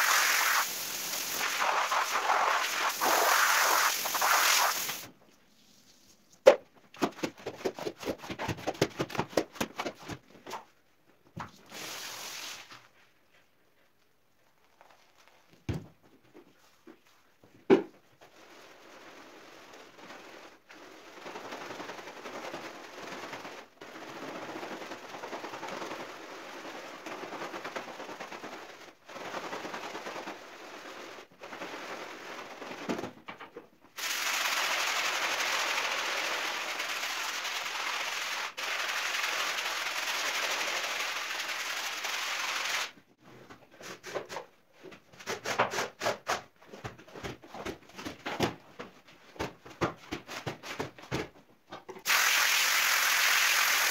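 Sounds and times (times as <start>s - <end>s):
loud steady hiss: 0.0s - 5.1s, 52.1s - 53.9s
scrub brush scrubbing wet rug: 0.0s - 6.0s.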